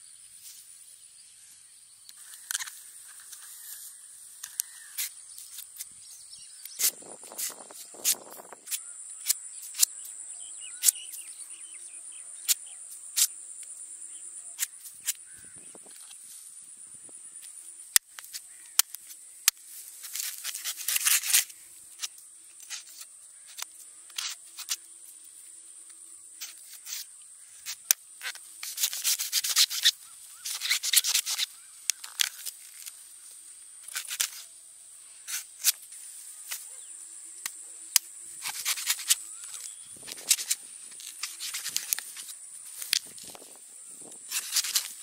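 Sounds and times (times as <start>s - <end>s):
knife scraping fibrous husk: 6.5s - 11.7s, 18.0s - 24.9s, 26.3s - 33.0s, 33.8s - 34.5s, 35.1s - 37.0s, 37.6s - 43.4s, 44.0s - 45.0s.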